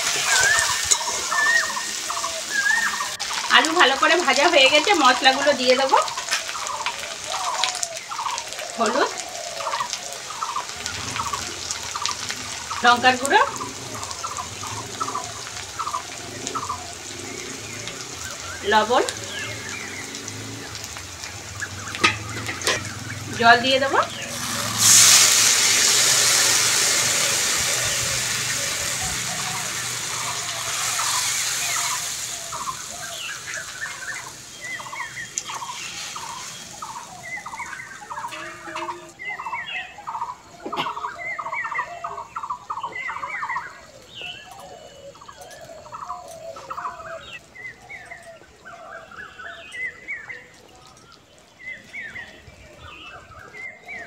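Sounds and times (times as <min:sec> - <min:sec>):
water sizzling in hot oil: 0:00.0 - 0:44.4
poultry calling: 0:21.5 - 0:25.0, 0:27.0 - 0:47.2.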